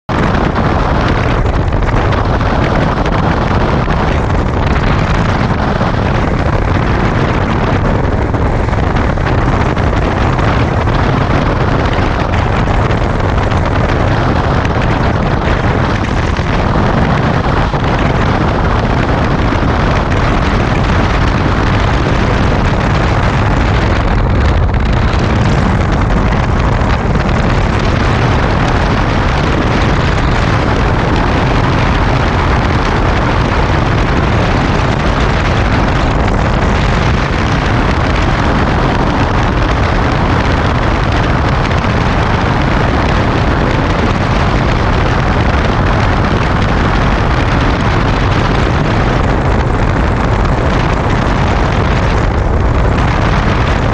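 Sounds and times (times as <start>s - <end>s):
motorcycle engine running: 0.0s - 53.9s
wind rushing over microphone: 0.0s - 53.9s.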